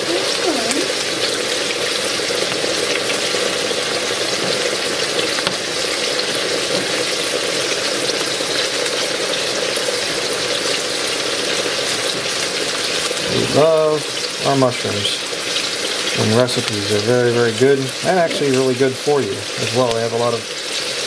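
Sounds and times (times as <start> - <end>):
chicken frying in a pan: 0.0 - 21.0.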